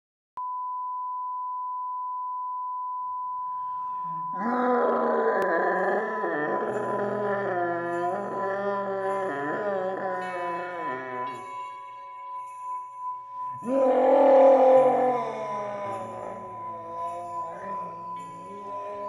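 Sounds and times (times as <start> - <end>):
low drone: 13.4 - 19.0.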